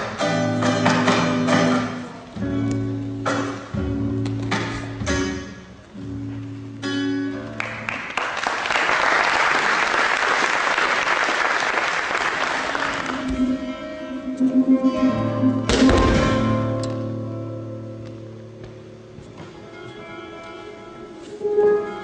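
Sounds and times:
live guitar: 0.0 - 8.8, 12.0 - 22.0
audience applauding: 7.6 - 13.3.

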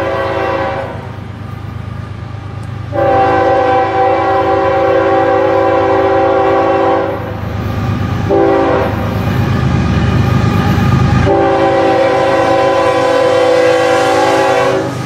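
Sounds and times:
locomotive air horn blasts: 0.0 - 1.2, 2.9 - 7.3, 8.3 - 9.1, 11.2 - 15.0
train rumbling: 0.0 - 15.0.

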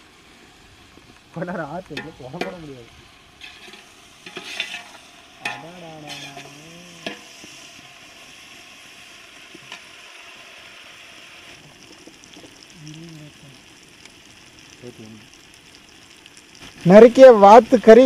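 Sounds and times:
food sizzling in oil: 0.0 - 18.0
person's voice: 5.4 - 7.1, 12.8 - 13.6, 16.8 - 18.0.

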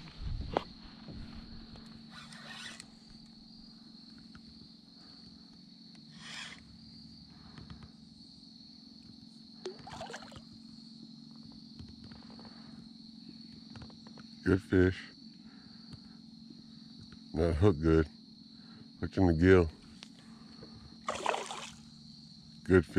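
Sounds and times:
insects droning: 0.0 - 22.9
fish splashing at surface: 9.7 - 10.4, 21.1 - 21.8.

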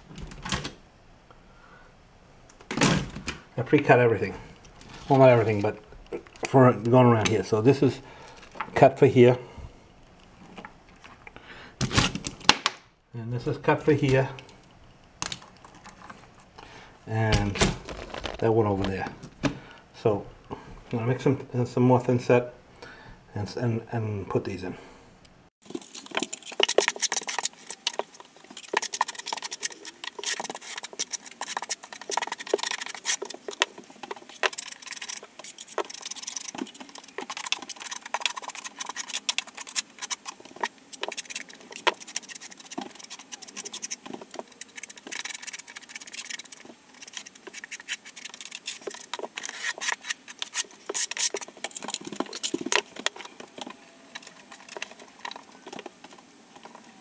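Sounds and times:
trowel scraping mortar: 25.7 - 52.8.

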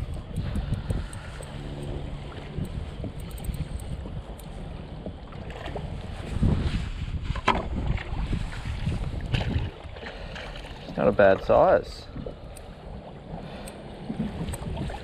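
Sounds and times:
water and hull noise: 0.0 - 15.0
wind buffeting microphone: 0.0 - 15.0.

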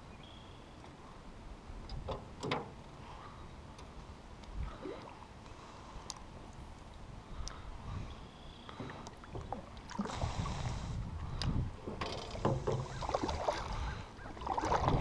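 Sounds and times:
paddle splashing in water: 11.8 - 15.0.

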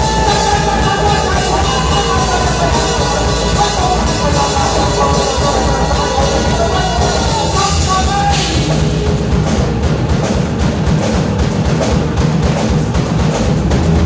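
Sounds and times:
cymbals: 0.0 - 10.6
drum kit: 0.0 - 14.0
electric guitar: 0.0 - 14.0.

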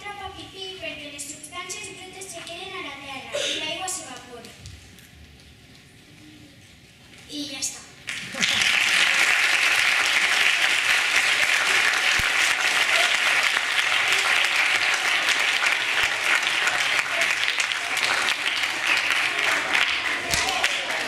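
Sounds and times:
audience applauding: 8.0 - 21.0.

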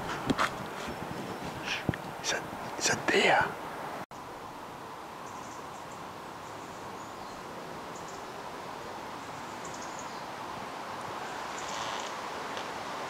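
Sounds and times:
small birds chirping: 9.2 - 10.4.

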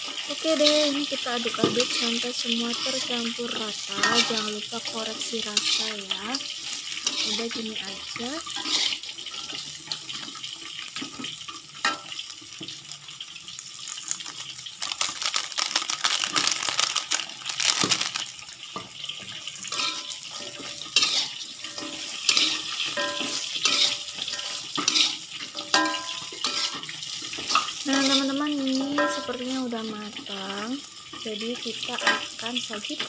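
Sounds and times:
tofu sizzling in a wok: 0.0 - 33.0
metal spatula scraping wok: 0.4 - 10.3, 19.6 - 28.4.

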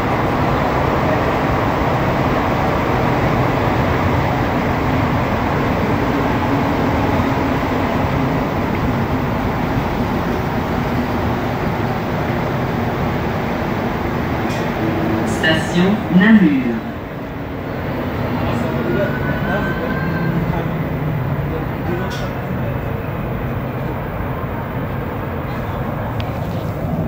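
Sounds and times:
train tyres rumbling: 0.0 - 27.0.

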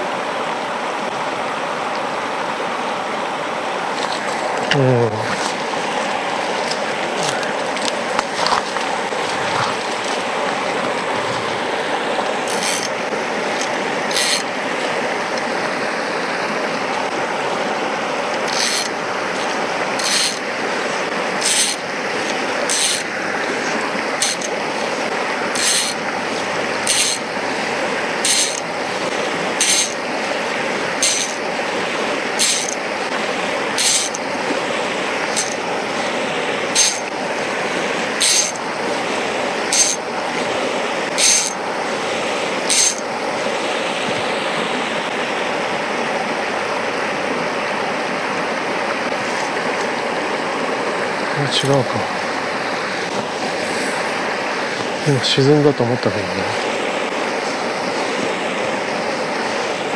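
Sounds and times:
stream rushing: 0.0 - 59.9
fly reel ratchet buzzing: 12.5 - 13.0, 13.6 - 14.5, 18.4 - 19.0, 20.0 - 20.5, 21.4 - 23.1, 24.2 - 24.6, 25.5 - 26.1, 26.8 - 27.3, 28.2 - 28.8, 29.6 - 30.0, 31.0 - 31.4, 32.4 - 32.8, 33.8 - 34.3, 35.2 - 35.7, 36.7 - 37.1, 38.2 - 38.6, 39.7 - 40.1, 41.2 - 41.6, 42.7 - 43.1.

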